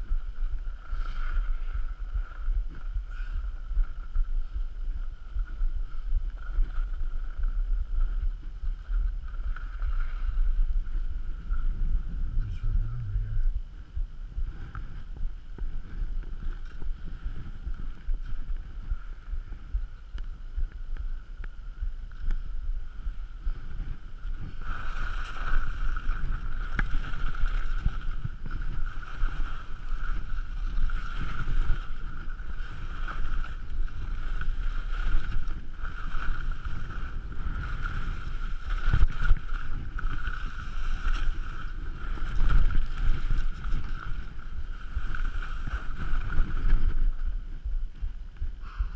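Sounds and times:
skis sliding over snow: 0.0 - 12.7, 14.4 - 47.5
wind buffeting microphone: 0.0 - 48.9.

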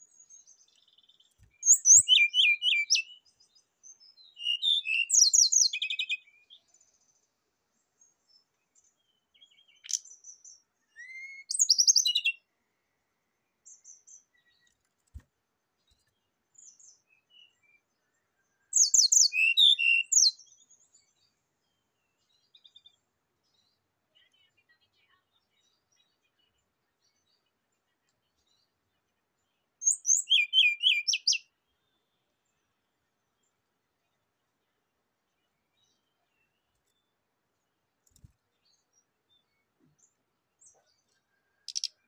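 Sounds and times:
bird chattering song: 0.7 - 3.2, 4.2 - 6.6, 9.4 - 10.2, 10.9 - 12.4, 18.8 - 20.4, 29.8 - 31.5, 40.6 - 42.0.

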